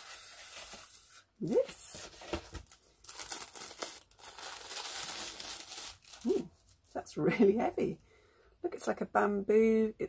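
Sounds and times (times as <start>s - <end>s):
paper rustling and crinkling: 0.0s - 7.0s.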